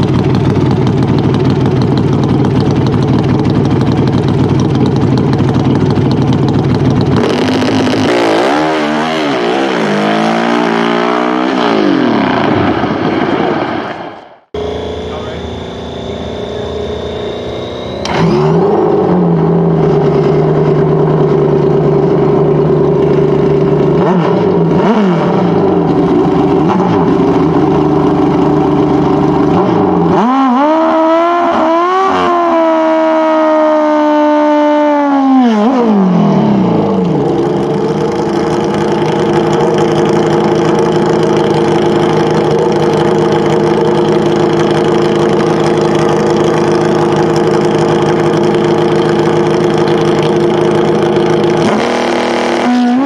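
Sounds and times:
motorcycle engine idling and revving: 0.0 - 53.0.

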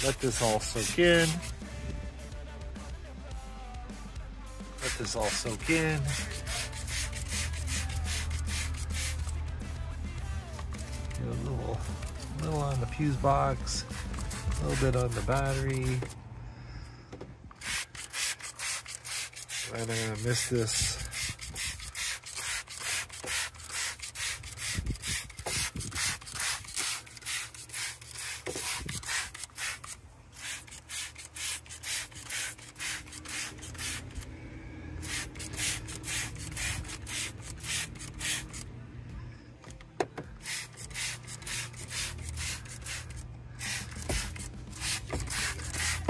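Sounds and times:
spray bottle hissing: 0.0 - 1.5, 4.8 - 9.4, 13.8 - 16.1, 17.6 - 34.2, 35.0 - 38.6, 40.3 - 46.0.

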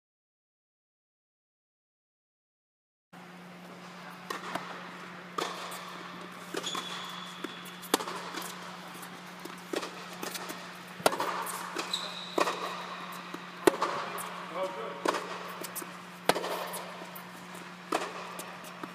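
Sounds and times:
steady low hum: 3.2 - 18.9
tennis balls struck by racquets: 4.2 - 18.9.

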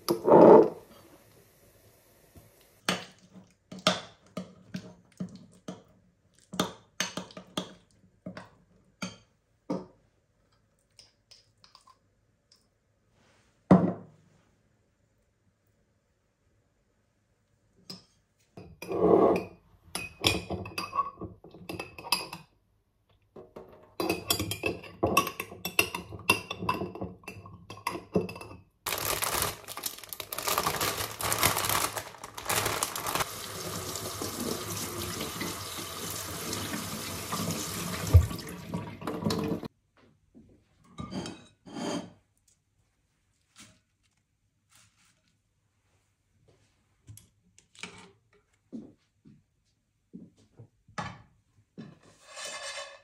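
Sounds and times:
tap running into sink: 33.4 - 39.7.

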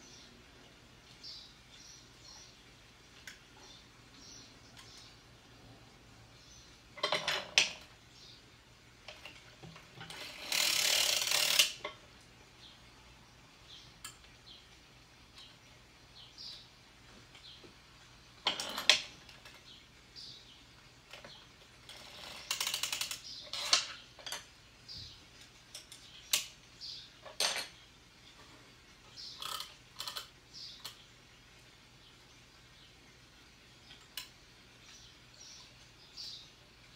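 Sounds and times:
sock machine clicking and rattling: 9.1 - 12.0, 21.9 - 24.4.

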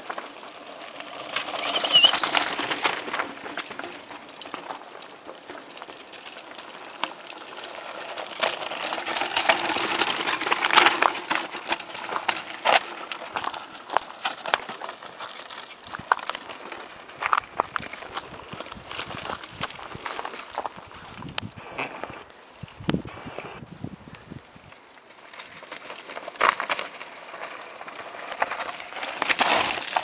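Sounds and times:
bike knocking and rattling on rocks: 0.0 - 22.1, 24.8 - 30.0
bike tyres crunching over stones: 0.0 - 23.5, 24.1 - 30.0.

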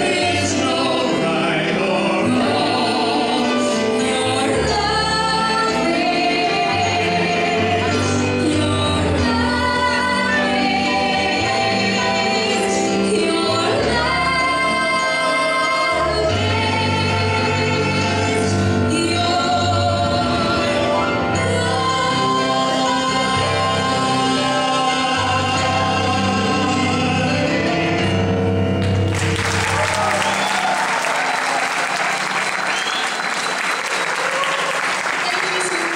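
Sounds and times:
man and woman singing: 0.0 - 27.8
backing music: 0.0 - 35.9
audience applause: 28.8 - 35.9.

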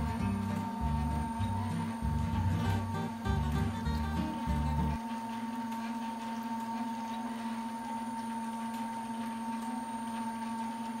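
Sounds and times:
high steady whine: 0.0 - 5.0
extruder machine humming: 0.0 - 11.0.

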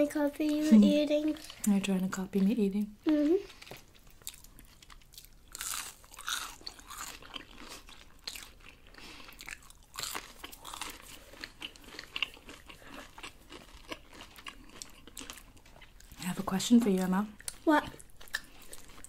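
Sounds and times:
crunching crispy fried food: 3.4 - 16.2.

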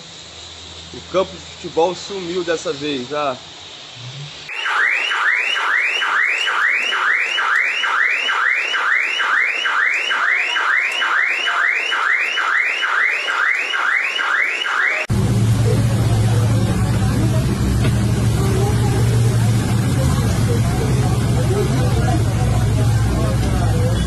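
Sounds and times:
electronic siren whooping: 4.5 - 17.2.

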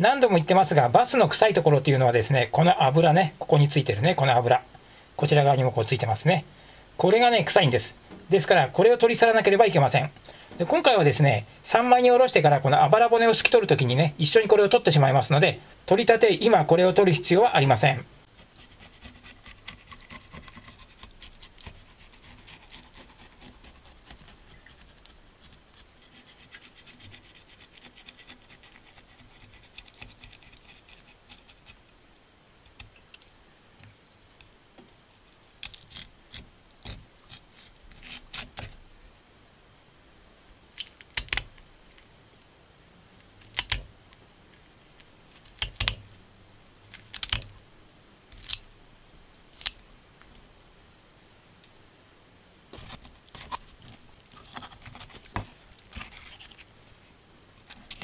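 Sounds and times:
knife scraping along fish backbone: 18.3 - 32.0, 35.6 - 38.8, 54.3 - 56.7.

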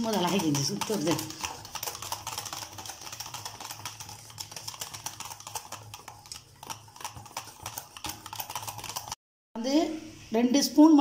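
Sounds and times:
whisk clicking against metal bowl: 0.0 - 9.2.

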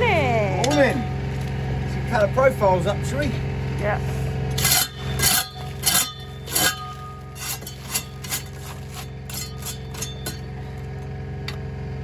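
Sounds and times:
steady low hum: 0.0 - 12.0
metal tools clinking on concrete: 0.6 - 1.6, 4.5 - 11.6.

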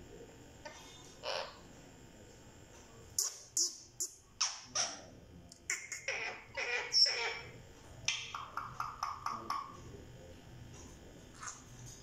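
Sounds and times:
parakeet babbling: 1.2 - 1.6, 5.7 - 9.7.

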